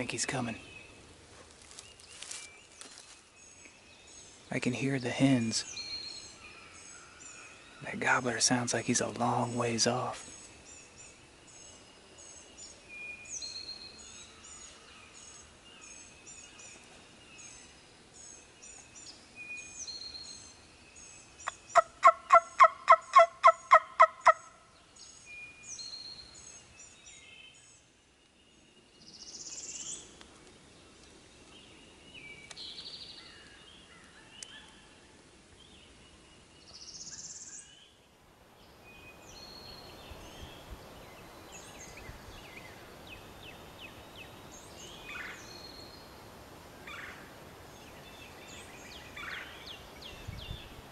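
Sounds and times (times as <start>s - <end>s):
songbirds chirping: 0.0s - 50.9s
turkey call yelps: 21.7s - 24.5s.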